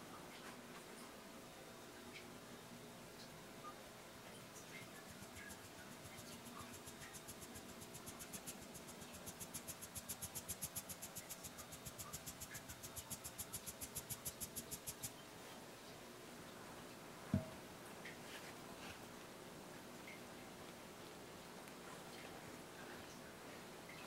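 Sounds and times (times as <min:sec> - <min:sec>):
sieve shaking scratchy rustle: 0:04.9 - 0:15.1.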